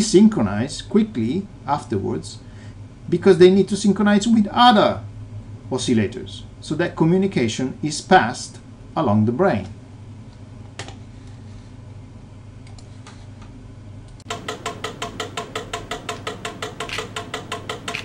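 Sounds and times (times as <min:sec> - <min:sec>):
low steady hum: 0:00.0 - 0:18.0
mechanical metronomes ticking: 0:14.3 - 0:18.0.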